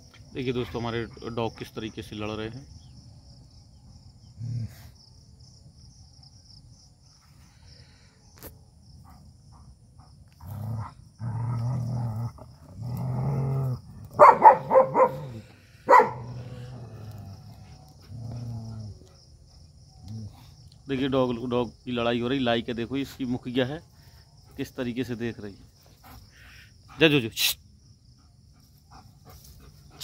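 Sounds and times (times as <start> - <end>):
crickets chirping: 0.0 - 30.0
dogs growling: 4.3 - 5.0, 9.0 - 20.8
dog barking loudly: 14.2 - 16.4.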